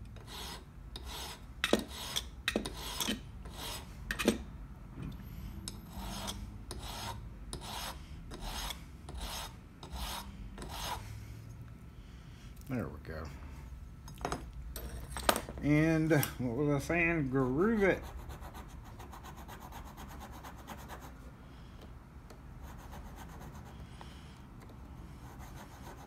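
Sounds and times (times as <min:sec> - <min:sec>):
file rasping on metal key: 0:00.2 - 0:04.3, 0:05.7 - 0:11.0.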